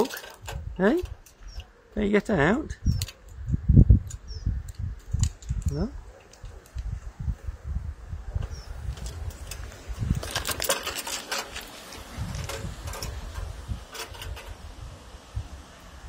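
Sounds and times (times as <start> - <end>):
scratchy rattles: 0.0 - 1.8, 8.4 - 14.7
wind buffeting microphone: 0.0 - 16.0.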